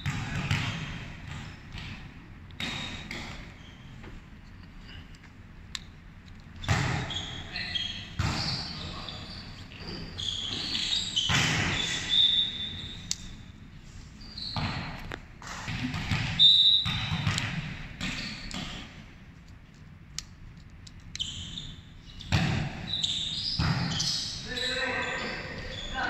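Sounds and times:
shoe squeaks: 2.8 - 4.1, 6.6 - 13.5, 14.2 - 15.0, 16.3 - 17.2, 18.0 - 18.9, 21.2 - 26.0
volleyball hits: 6.6 - 7.4, 8.1 - 8.8, 10.6 - 12.1, 14.5 - 19.0, 22.2 - 24.1.

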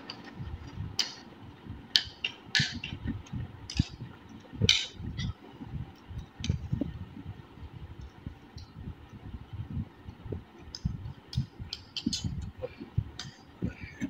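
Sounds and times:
soft low thumps: 2.6 - 14.0.

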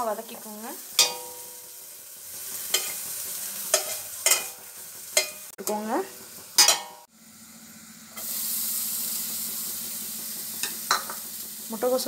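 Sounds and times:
vegetables sizzling in hot oil: 0.0 - 12.0
metal spatula scraping: 2.5 - 5.8.

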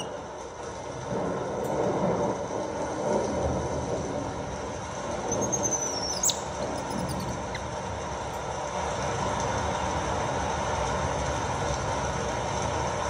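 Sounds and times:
steady rumbling noise: 0.0 - 13.0
baby monkey squealing: 5.4 - 7.6.

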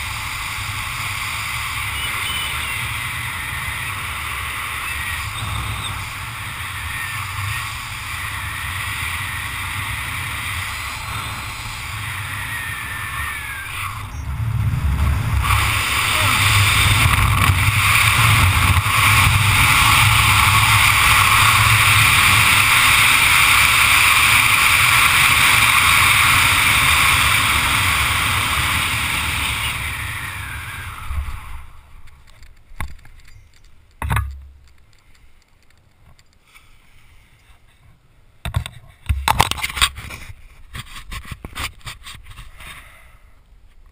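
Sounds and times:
wind rushing over microphone: 0.0 - 32.1
rustles: 30.6 - 43.9
short thumps: 33.9 - 34.8.

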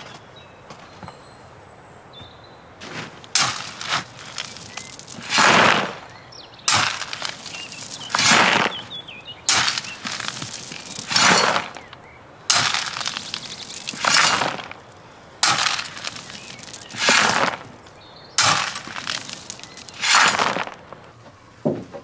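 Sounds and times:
stones pouring into wheelbarrow: 2.8 - 6.0, 6.7 - 11.9, 12.5 - 17.8, 18.4 - 21.0
shovel scraping into gravel: 2.8 - 6.1, 6.7 - 11.9, 12.5 - 14.8, 15.4 - 17.7, 18.4 - 21.0.

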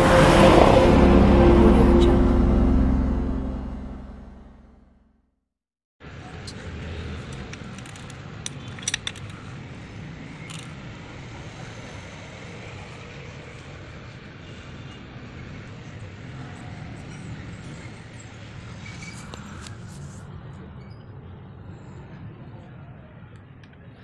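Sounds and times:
low background rumble: 0.0 - 4.9.

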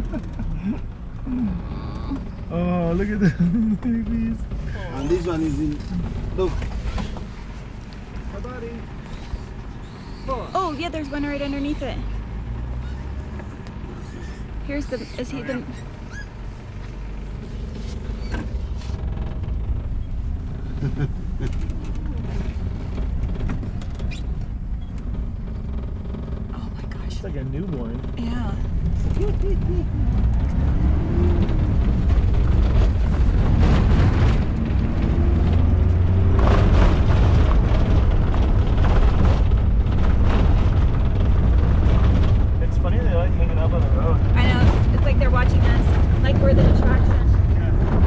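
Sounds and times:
vehicle engine running: 0.0 - 48.0
knocks and rattles: 18.0 - 48.0.

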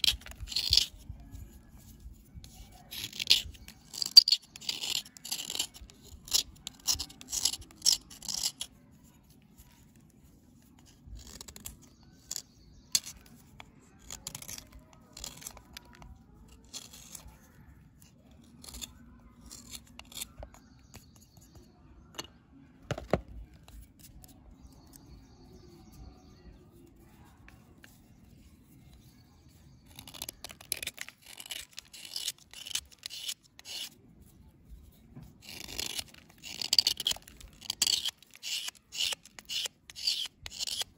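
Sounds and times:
knife blade scraping: 0.0 - 1.0, 2.4 - 8.7, 18.6 - 21.4, 29.7 - 34.0, 35.4 - 40.9.

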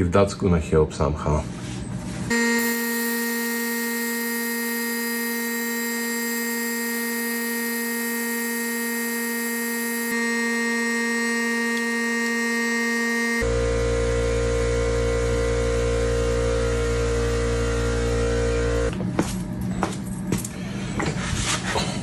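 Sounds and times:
fluid extractor air hiss and whistle: 2.3 - 13.8.

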